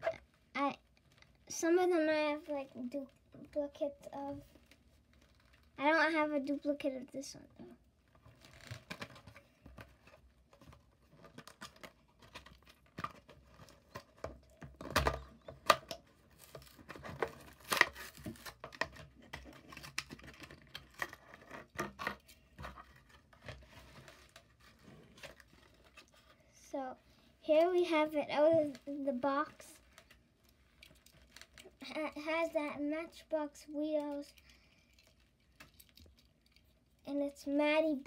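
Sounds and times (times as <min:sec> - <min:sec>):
plastic blister crinkling: 0:08.0 - 0:27.8, 0:28.4 - 0:32.0, 0:34.0 - 0:37.0.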